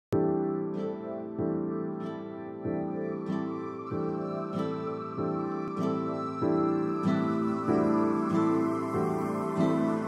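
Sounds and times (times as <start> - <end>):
soft instrumental music chords: 0.1 - 10.0.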